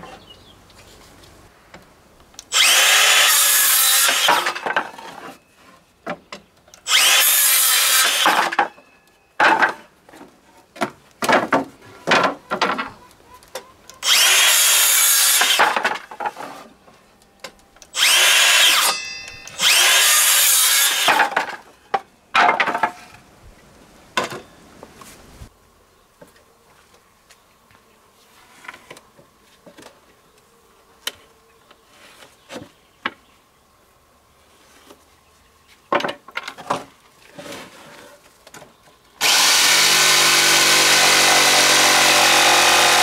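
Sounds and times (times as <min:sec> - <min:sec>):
power tool cutting wood: 0:02.5 - 0:04.8, 0:06.8 - 0:08.7, 0:14.0 - 0:15.9, 0:17.9 - 0:21.5, 0:39.2 - 0:43.0.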